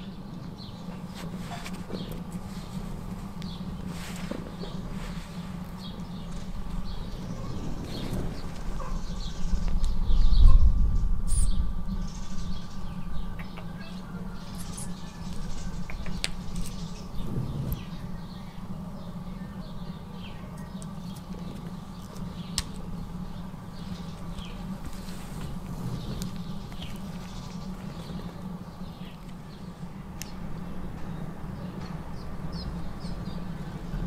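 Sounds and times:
wind rumble on microphone: 0:00.0 - 0:20.1, 0:20.8 - 0:34.0
bird chirps: 0:06.9 - 0:21.2.

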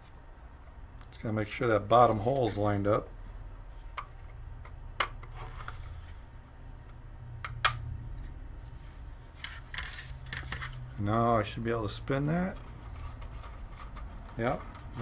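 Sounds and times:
steady low hum: 0:00.0 - 0:15.0
plastic rubbing and scraping: 0:09.2 - 0:11.0, 0:12.4 - 0:15.0.

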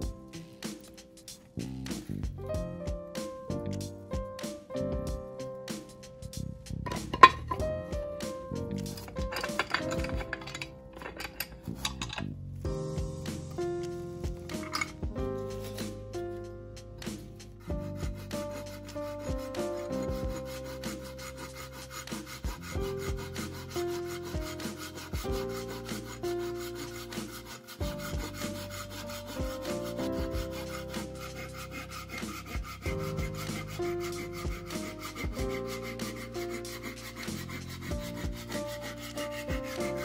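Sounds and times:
background music with held notes: 0:00.0 - 0:40.0
saw rasping through wood: 0:06.9 - 0:12.2, 0:13.2 - 0:16.4, 0:17.0 - 0:40.0.

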